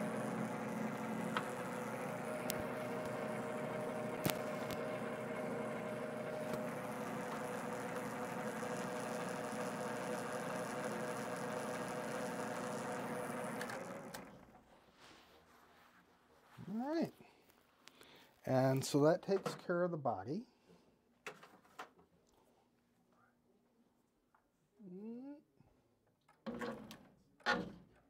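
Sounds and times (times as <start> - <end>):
metal lathe motor whine: 0.0 - 14.4.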